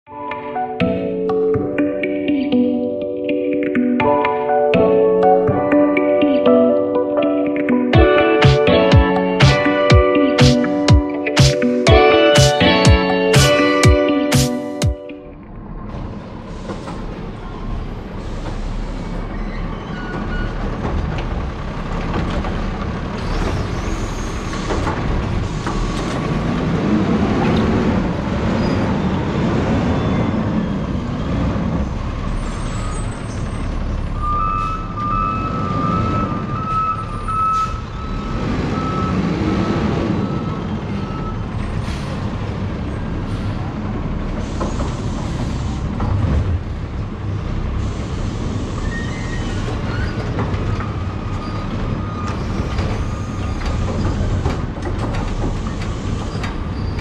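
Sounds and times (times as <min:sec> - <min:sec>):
diesel engine revving: 0:15.5 - 0:49.8
reversing alarm beeps: 0:34.2 - 0:41.4.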